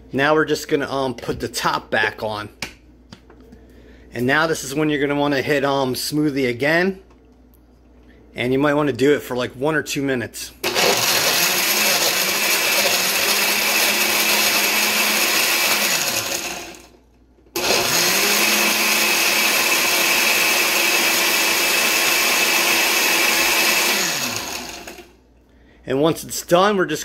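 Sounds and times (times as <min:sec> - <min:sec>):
blender crushing ice: 0:10.6 - 0:17.0, 0:17.6 - 0:25.2.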